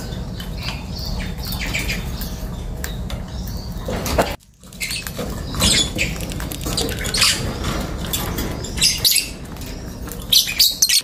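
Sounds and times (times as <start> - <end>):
lovebirds chirping and squawking: 0.0 - 11.0.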